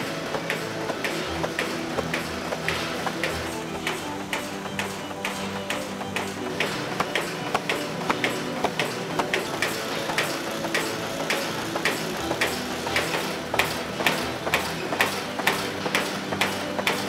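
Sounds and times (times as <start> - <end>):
box folding machine clatter: 0.0 - 17.0
steady mechanical hum: 0.0 - 17.0.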